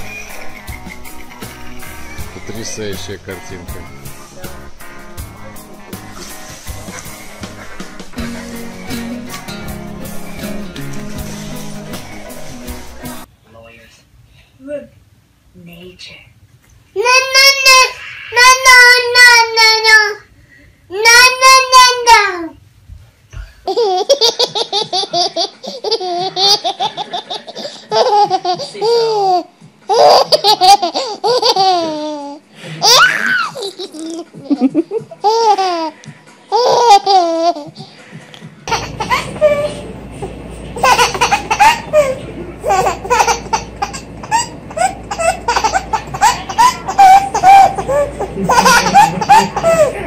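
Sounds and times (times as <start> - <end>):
baby giggling: 23.7 - 37.9, 38.7 - 39.9, 40.8 - 50.0
baby laughing: 23.7 - 37.9, 38.7 - 50.0
low steady hum: 38.6 - 50.0.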